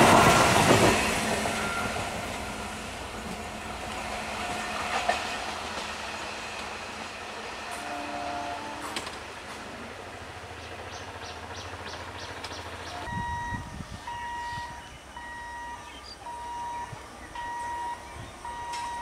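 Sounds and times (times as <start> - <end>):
electric train rumbling past: 0.0 - 19.0
wheels clicking over rail joints: 8.8 - 9.8, 10.6 - 13.1
electronic warning beeper: 13.1 - 19.0.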